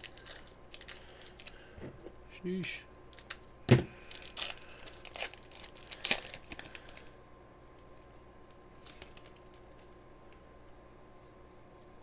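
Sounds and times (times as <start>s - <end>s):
foil wrapper tearing and crinkling: 0.0s - 1.6s, 3.1s - 7.1s, 8.8s - 9.9s.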